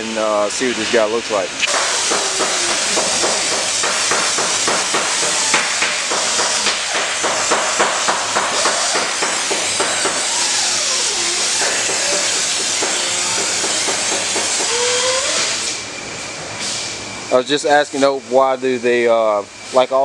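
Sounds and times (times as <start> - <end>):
compressed air blow gun hissing: 1.7 - 15.8.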